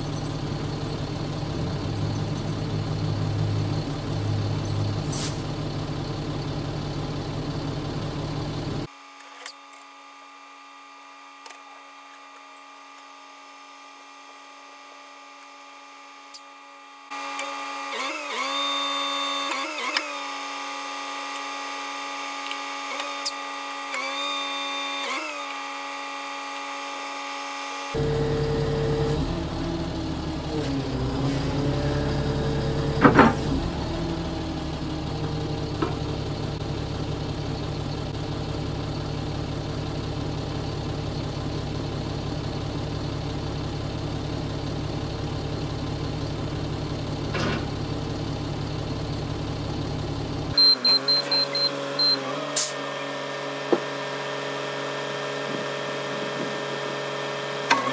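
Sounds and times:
diesel engine idling: 0:00.0 - 0:08.9, 0:28.0 - 0:57.9
hydraulic whine: 0:00.0 - 0:39.2, 0:47.2 - 0:57.9.

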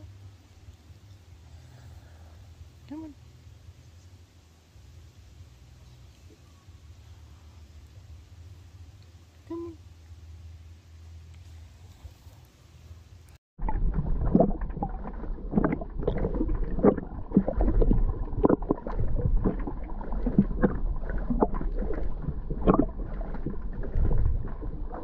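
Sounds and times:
low rumble: 0:13.6 - 0:25.0
muffled water sloshing: 0:13.6 - 0:25.0.

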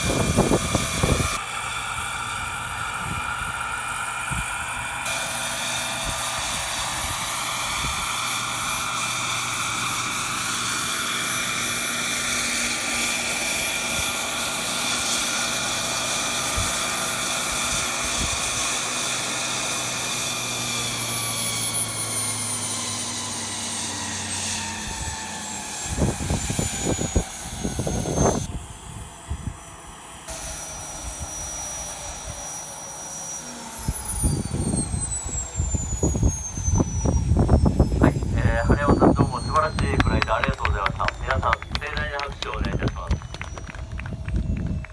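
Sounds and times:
model jet turbine whining: 0:00.0 - 0:44.9
low rumbling bursts: 0:33.9 - 0:44.9.

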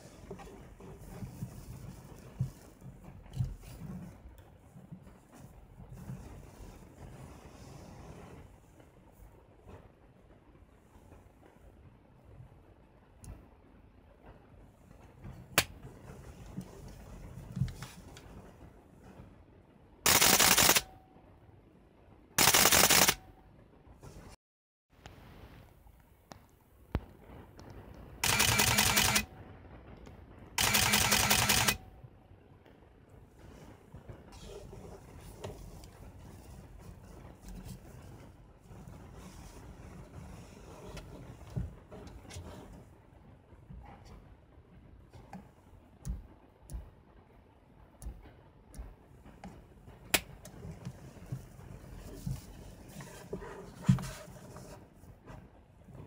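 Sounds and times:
camera shutter and motor drive bursts: 0:20.1 - 0:20.8, 0:22.4 - 0:23.2, 0:28.2 - 0:29.2, 0:30.6 - 0:31.8.

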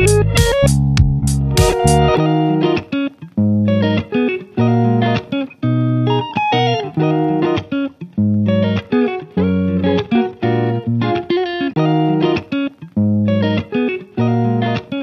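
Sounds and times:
plucked-string tune: 0:00.0 - 0:15.0.

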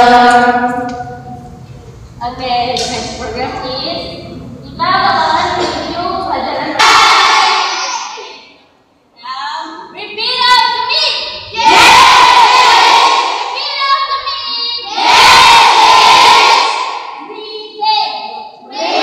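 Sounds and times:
students shouting together: 0:06.8 - 0:08.4, 0:11.6 - 0:13.9, 0:14.8 - 0:17.2, 0:18.7 - 0:19.0.

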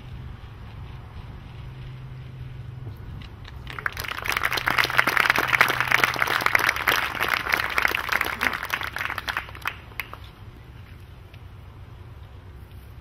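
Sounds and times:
crowd applauding: 0:03.5 - 0:10.3.

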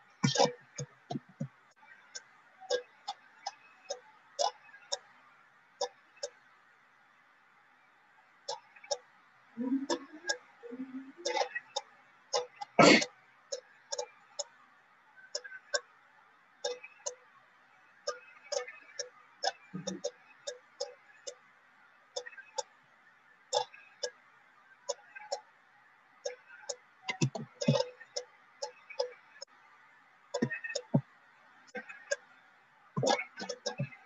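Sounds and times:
computer mouse clicking: 0:33.0 - 0:34.0.

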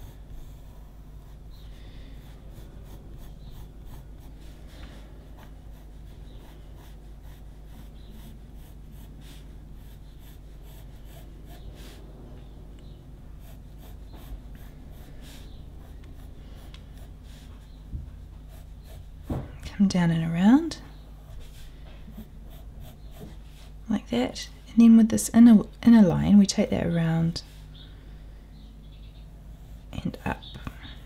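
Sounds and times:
pencil scratching on paper: 0:00.0 - 0:12.0, 0:13.3 - 0:20.5, 0:21.2 - 0:23.8
steady low hum: 0:00.0 - 0:31.0.

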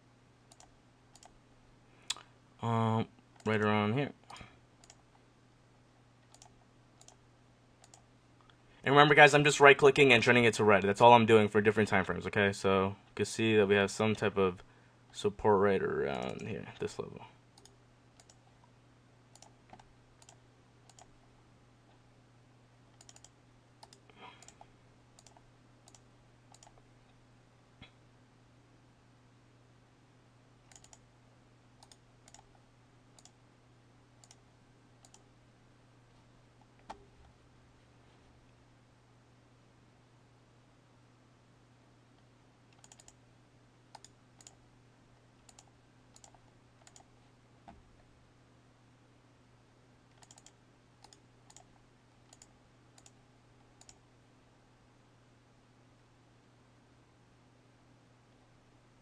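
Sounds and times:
low steady hum: 0:00.0 - 0:59.0
computer mouse clicks: 0:00.5 - 0:01.4, 0:04.2 - 0:05.1, 0:06.2 - 0:07.2, 0:07.8 - 0:08.6, 0:17.6 - 0:18.7, 0:19.3 - 0:21.1, 0:22.9 - 0:26.8, 0:30.7 - 0:31.0, 0:31.8 - 0:32.6, 0:33.2 - 0:33.4, 0:34.2 - 0:34.4, 0:35.0 - 0:35.3, 0:42.7 - 0:43.2, 0:43.9 - 0:44.6, 0:45.4 - 0:47.1, 0:50.1 - 0:53.2, 0:53.8 - 0:54.0.

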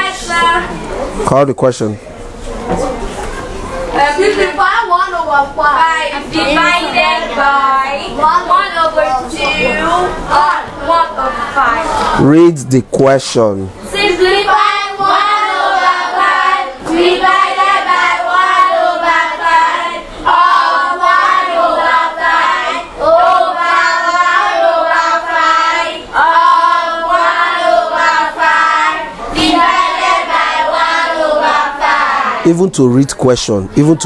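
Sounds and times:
children chanting in unison: 0:13.9 - 0:32.5.

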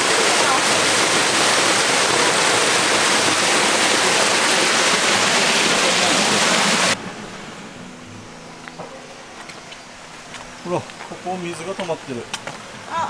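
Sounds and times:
water rushing over a drop: 0:00.0 - 0:07.0.

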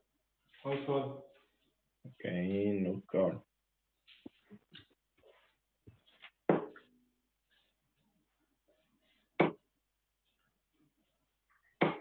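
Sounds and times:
darts striking a dartboard: 0:06.5 - 0:06.8, 0:09.4 - 0:09.6, 0:11.8 - 0:12.0.

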